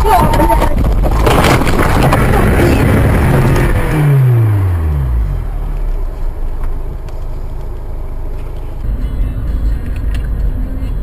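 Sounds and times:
road noise: 0.0s - 11.0s
vehicle engine hum dropping: 0.0s - 11.0s.

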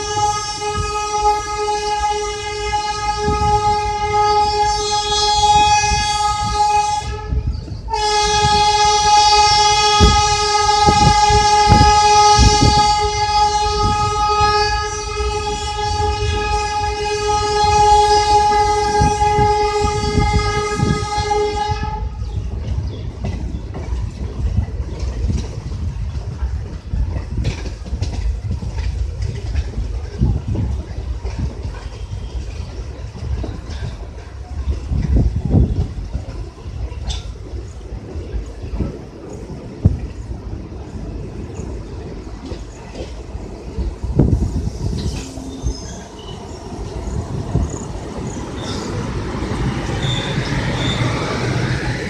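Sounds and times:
train horn blasts: 0.0s - 22.4s, 44.2s - 51.7s
train wheels clattering over rail joints: 7.7s - 52.0s.

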